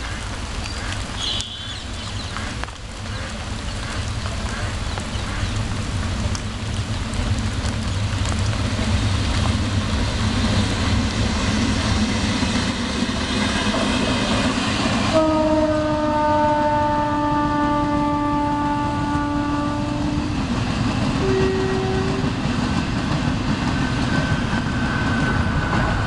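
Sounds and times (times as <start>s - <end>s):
train rumbling on track: 0.0s - 26.0s
train horn blast: 1.2s - 1.9s, 15.0s - 20.6s, 21.2s - 22.4s.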